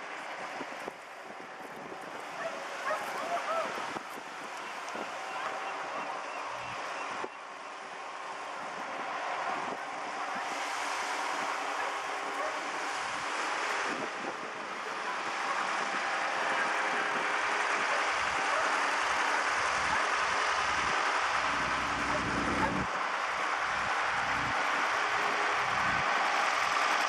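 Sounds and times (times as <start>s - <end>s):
distant tractor engine running: 0.0s - 27.0s
wind rushing over microphone: 8.6s - 27.0s.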